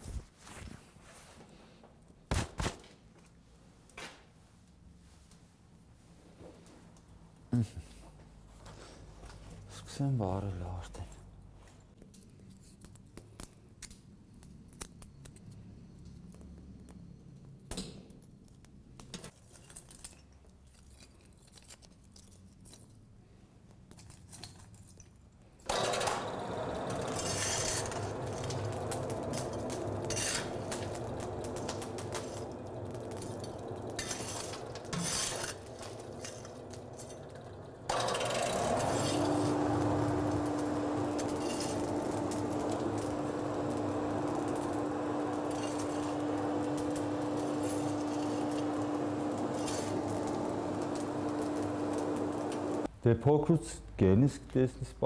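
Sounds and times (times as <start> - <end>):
coal scraping and clinking: 25.7 - 52.9
kindling crackling: 25.7 - 52.9
rushing fire: 25.7 - 52.9
steady hum: 26.3 - 52.9.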